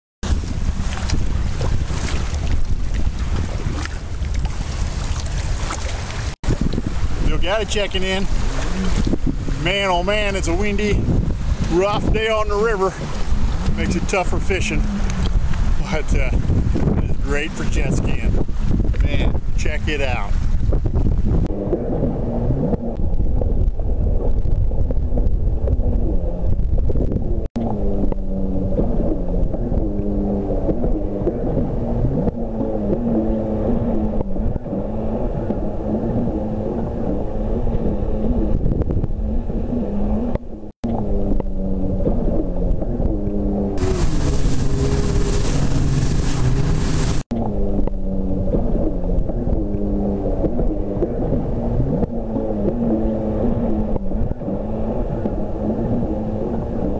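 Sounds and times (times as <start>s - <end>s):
jet ski engine revving: 6.2s - 20.5s, 21.4s - 23.2s, 27.6s - 56.9s.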